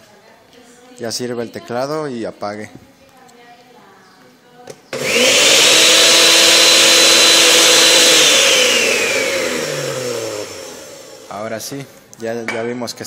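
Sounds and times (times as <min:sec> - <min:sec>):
blender motor whining: 0:04.9 - 0:11.6.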